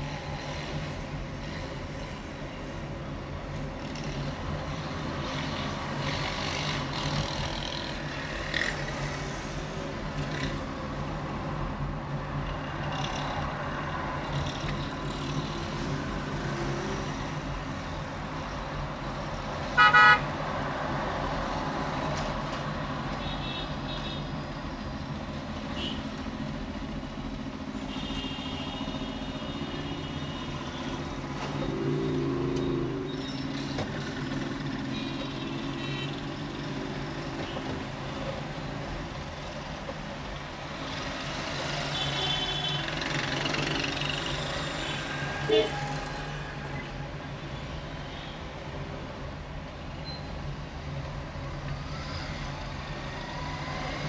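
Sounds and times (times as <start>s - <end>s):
traffic engine drone: 0.0s - 54.0s
vehicle horn: 19.8s - 20.2s, 44.9s - 45.8s.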